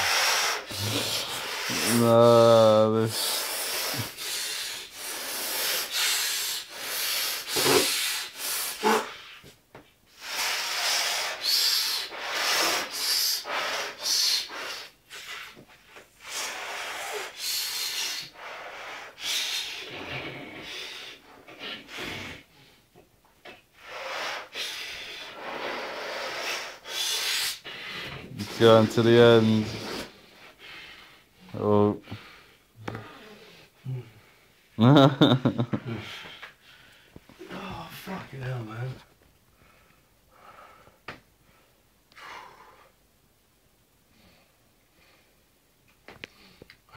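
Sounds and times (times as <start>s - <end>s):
rubber rubbing: 0.0s - 2.2s, 5.1s - 9.2s.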